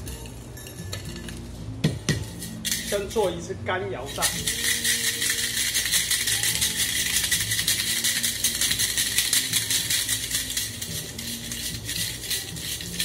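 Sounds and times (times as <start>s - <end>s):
cocktail shaker rattling: 2.2s - 3.4s, 4.0s - 13.0s.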